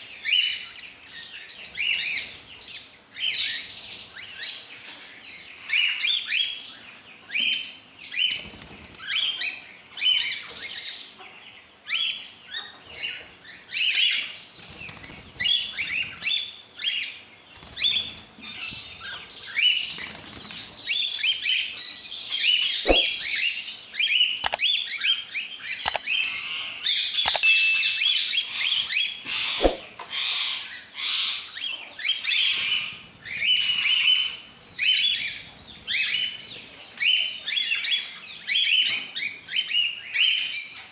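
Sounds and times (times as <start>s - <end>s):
sharp clicks: 24.4s - 24.7s, 25.8s - 26.1s, 27.2s - 27.5s.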